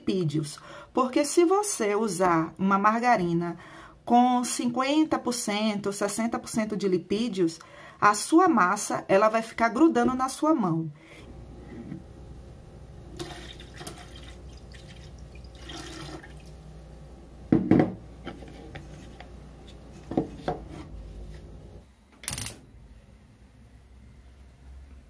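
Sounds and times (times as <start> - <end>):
liquid pouring into a pan: 13.2 - 16.6.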